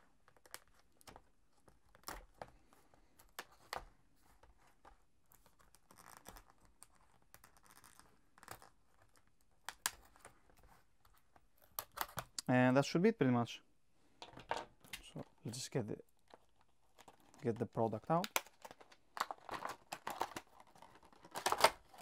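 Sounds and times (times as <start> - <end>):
plastic crinkling: 16.1 - 22.0.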